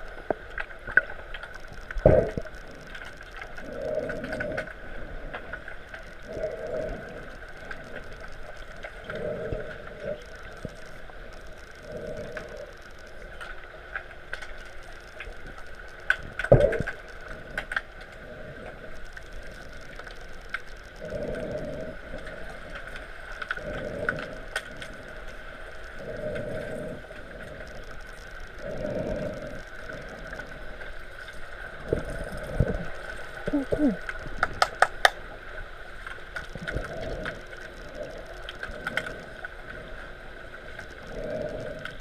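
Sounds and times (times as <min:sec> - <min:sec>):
soft underwater rush: 0:00.0 - 0:42.0
steady high hum: 0:00.0 - 0:42.0
underwater clicks and knocks: 0:34.0 - 0:35.2.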